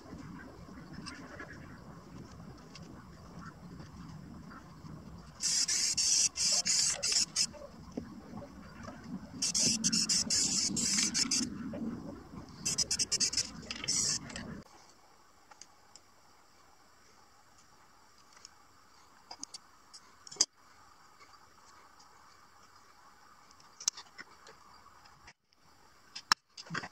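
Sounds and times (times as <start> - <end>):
spray paint can hissing: 5.4 - 7.5, 9.4 - 11.5, 12.6 - 14.4.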